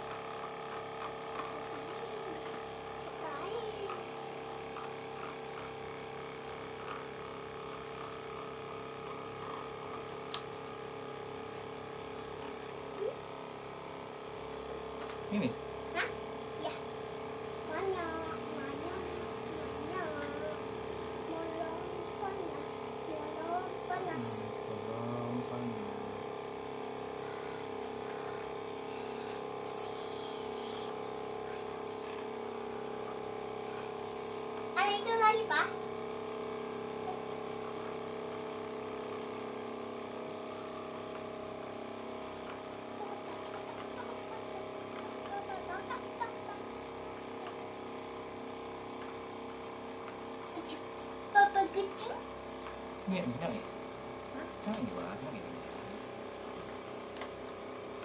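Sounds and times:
cotton candy machine motor hum: 0:00.0 - 0:58.0
sharp click: 0:10.3 - 0:10.5.

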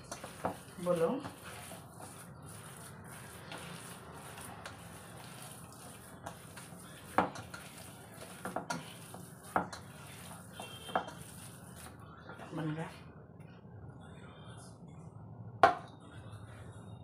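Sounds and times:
squishing of mixture by hand: 0:00.0 - 0:13.0.

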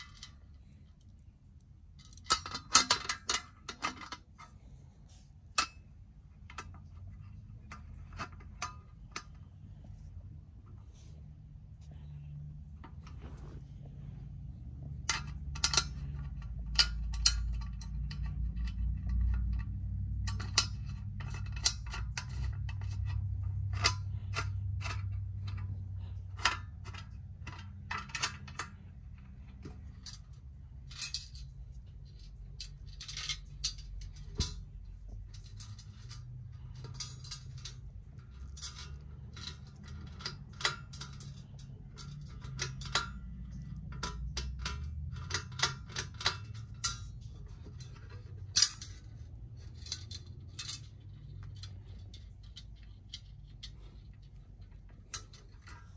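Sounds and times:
low rumble of handling: 0:00.0 - 0:55.9
metallic clicks and clinks: 0:14.8 - 0:55.9.

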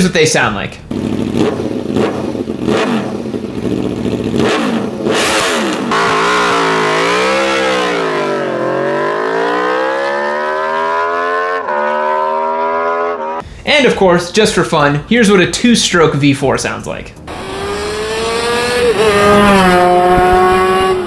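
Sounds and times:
motorcycle accelerating away: 0:00.9 - 0:13.4, 0:17.3 - 0:21.0
motorcycle engine revving: 0:00.9 - 0:13.4, 0:17.2 - 0:21.0
motorcycle throttle blips: 0:17.2 - 0:21.0.

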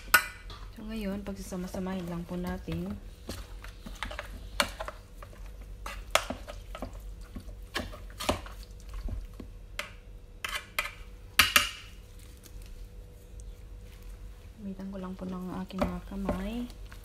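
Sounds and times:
metal spoon scraping a bowl: 0:10.4 - 0:11.0.

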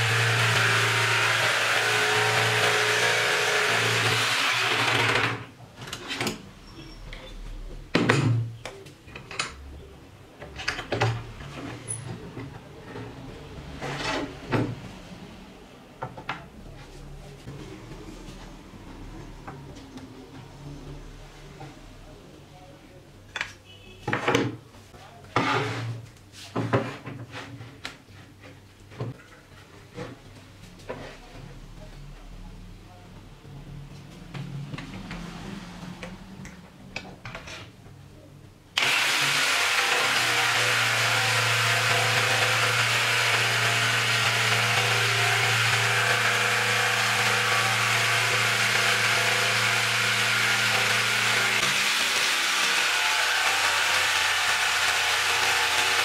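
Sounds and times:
jigsaw sawing through wood: 0:00.0 - 0:05.4, 0:38.8 - 0:56.0.

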